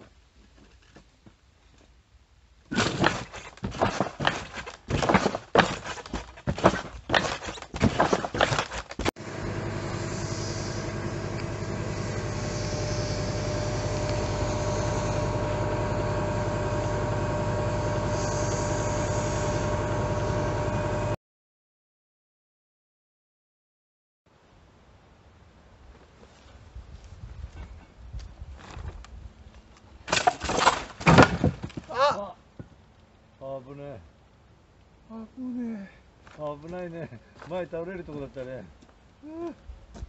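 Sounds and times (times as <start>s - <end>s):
laser cutter humming: 9.2s - 21.1s.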